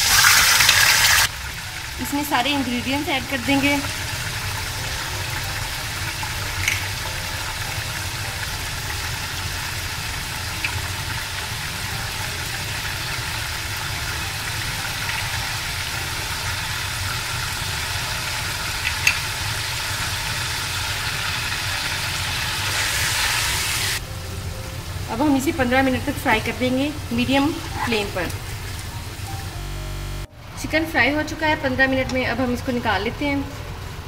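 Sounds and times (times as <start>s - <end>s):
chicken sizzling in hot oil: 0.0s - 30.2s
low steady hum: 24.0s - 34.0s.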